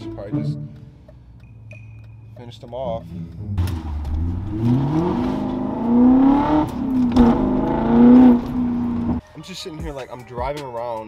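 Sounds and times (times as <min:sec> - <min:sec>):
car engine accelerating: 0:03.0 - 0:09.2.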